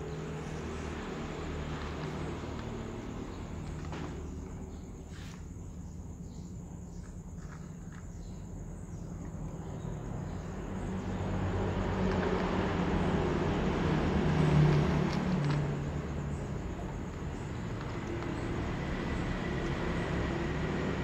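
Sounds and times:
motor vehicle passing by: 0.0s - 5.4s, 10.0s - 21.0s.

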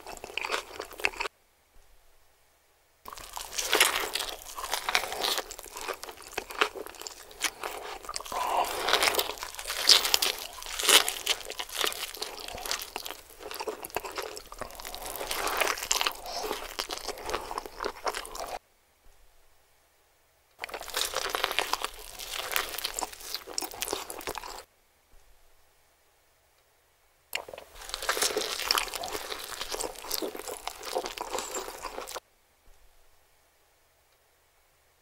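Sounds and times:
man chewing a burger: 0.0s - 1.3s, 3.1s - 18.6s, 20.6s - 24.7s, 27.4s - 32.2s.

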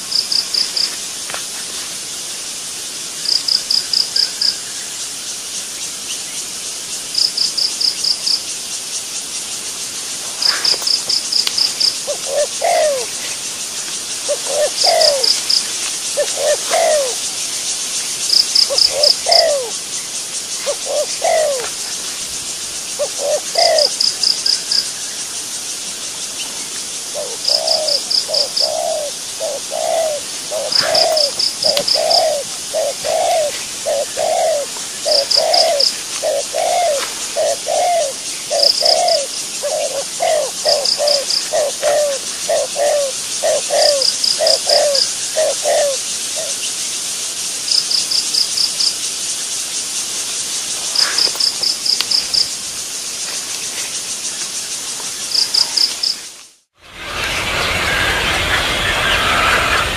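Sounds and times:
high insect hiss: 0.0s - 59.9s
rapid high insect pulses: 0.0s - 59.9s
bird calling low notes: 14.3s - 15.5s, 18.6s - 19.7s, 27.2s - 46.5s, 57.1s - 59.9s.

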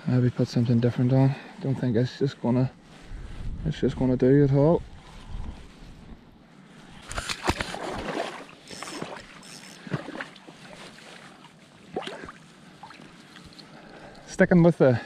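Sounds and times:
fishing gear clicks and knocks: 7.0s - 7.8s, 8.6s - 10.1s.

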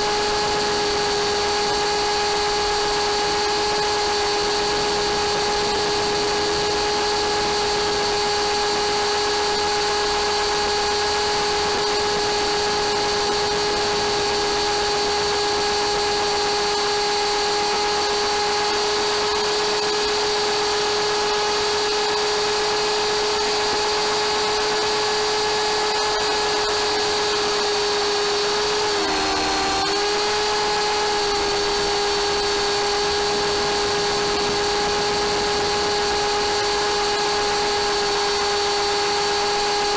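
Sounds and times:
rc helicopter motor whine: 0.0s - 39.9s
rotor rushing: 0.0s - 39.9s.

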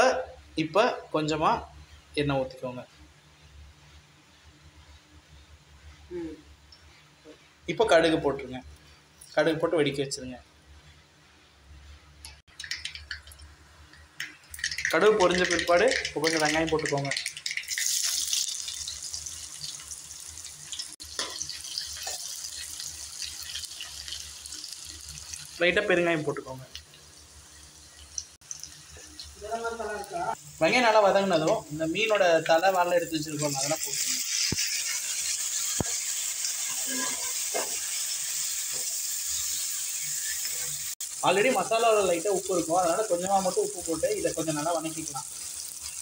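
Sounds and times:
onions sizzling in hot oil: 14.4s - 46.0s.

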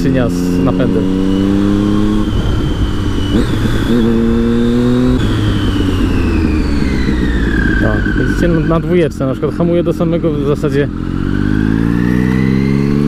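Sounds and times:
motorcycle engine humming: 0.0s - 13.0s
road and wind rush: 0.0s - 13.0s
high whine falling in pitch: 1.2s - 9.8s.

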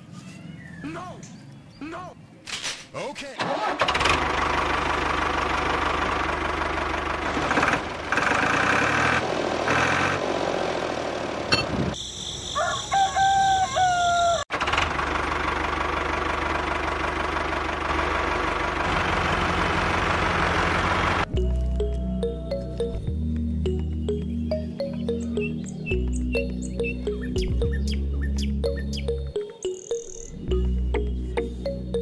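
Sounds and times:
tractor engine idling: 3.4s - 11.6s, 14.5s - 22.8s
rooster crowing: 12.4s - 14.5s.

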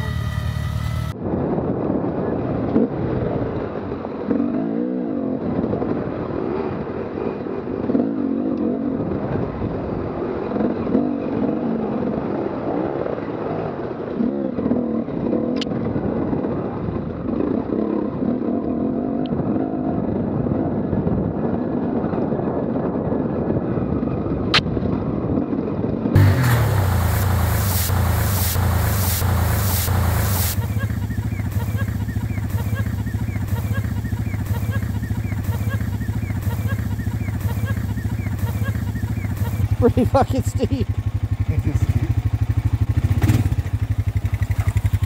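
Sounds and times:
dirt bike engine revving: 0.0s - 1.2s, 26.2s - 45.0s.

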